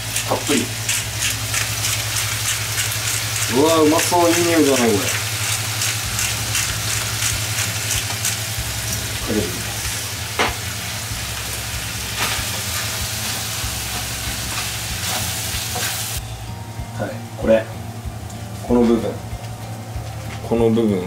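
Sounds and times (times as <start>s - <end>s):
chicken sizzling in a frying pan: 0.0s - 16.2s.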